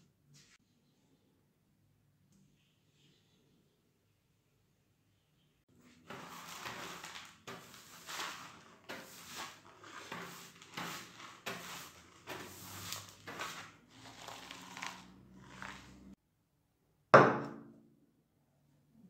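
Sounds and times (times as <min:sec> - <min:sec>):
hand brush sweeping grit: 0:05.8 - 0:16.2.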